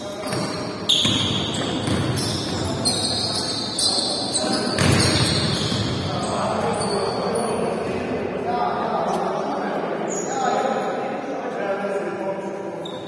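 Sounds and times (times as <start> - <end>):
sneakers squeaking: 0.0 - 8.0, 10.1 - 10.6, 12.8 - 13.0
basketball bouncing: 0.2 - 2.7, 4.8 - 5.9.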